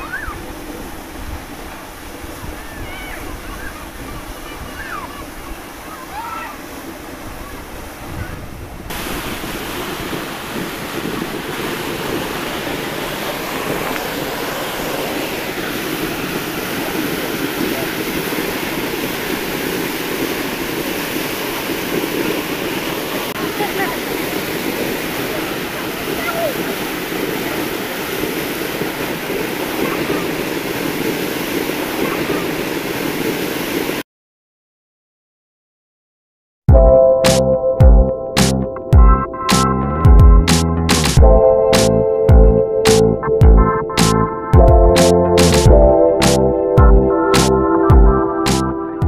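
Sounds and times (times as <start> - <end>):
water gushing from pipe: 8.9 - 34.0.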